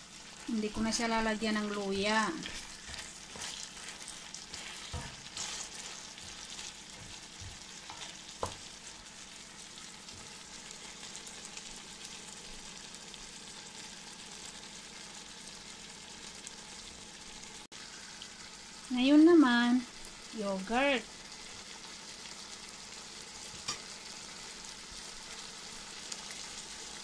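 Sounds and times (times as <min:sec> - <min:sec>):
food sizzling in a frying pan: 0:00.0 - 0:27.0
wooden spoon stirring: 0:00.7 - 0:09.0.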